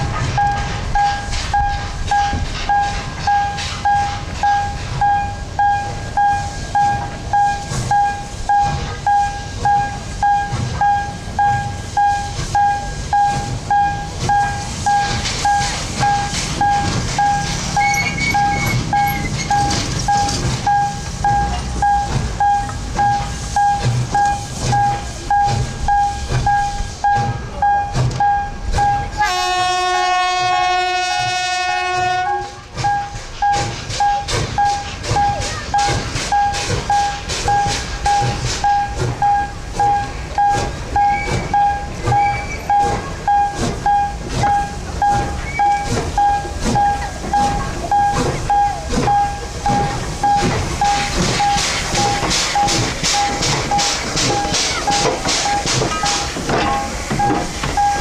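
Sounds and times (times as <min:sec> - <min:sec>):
steam locomotive chuffing: 0:00.0 - 0:58.0
steam whistle: 0:29.1 - 0:32.6.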